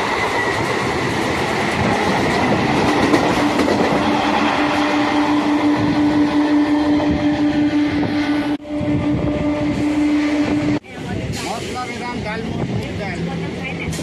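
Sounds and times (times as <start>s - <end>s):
train wheels clattering over rails: 0.0s - 4.9s
passing train: 0.0s - 14.0s.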